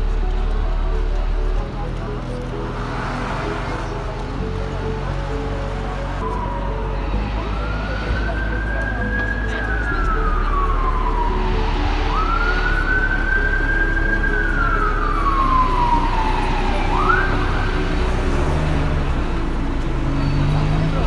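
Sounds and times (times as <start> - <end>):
low city rumble: 0.0 - 21.0
emergency siren wailing: 3.4 - 19.6.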